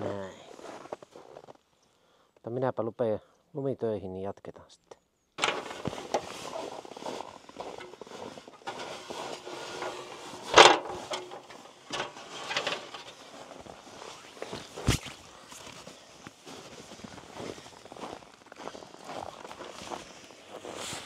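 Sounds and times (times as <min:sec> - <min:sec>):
footsteps in snow: 0:00.0 - 0:01.6, 0:05.4 - 0:21.0
loud metal clank: 0:05.4 - 0:06.6, 0:08.6 - 0:13.2
stepladder scraping and knocking: 0:05.4 - 0:13.7.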